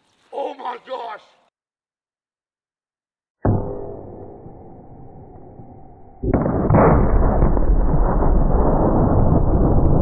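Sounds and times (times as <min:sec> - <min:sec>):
slowed gun boom: 0:03.4 - 0:10.0
loud rumble: 0:06.2 - 0:10.0
second blast: 0:06.2 - 0:10.0.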